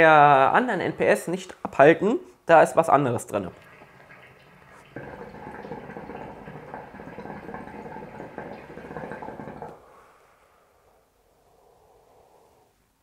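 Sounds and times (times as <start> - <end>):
water bubbling in hookah: 3.5 - 10.0.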